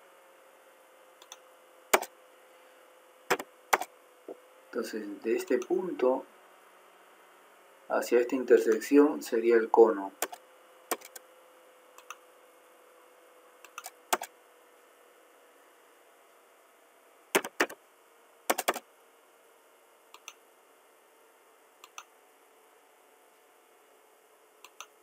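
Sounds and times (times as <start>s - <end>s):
mouse clicks: 1.2s - 1.4s, 3.3s - 3.9s, 10.2s - 11.2s, 12.0s - 12.2s, 13.6s - 14.3s, 20.2s - 20.4s, 21.8s - 22.1s, 24.6s - 25.0s
computer keystrokes: 10.2s - 11.2s, 13.7s - 14.3s, 17.4s - 17.8s, 18.5s - 18.8s, 24.7s - 25.0s.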